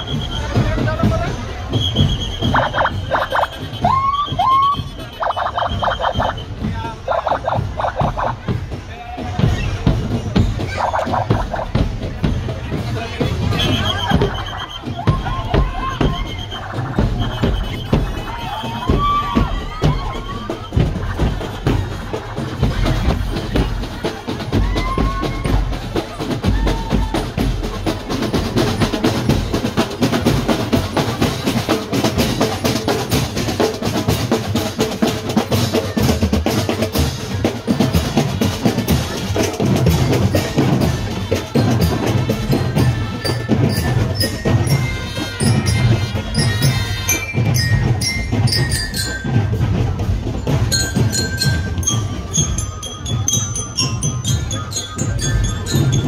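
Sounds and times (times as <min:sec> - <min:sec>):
bass drums: 0:00.0 - 0:56.0
cymbals: 0:00.0 - 0:56.0
snare drums: 0:00.0 - 0:56.0
trumpets playing a melody: 0:42.2 - 0:48.2.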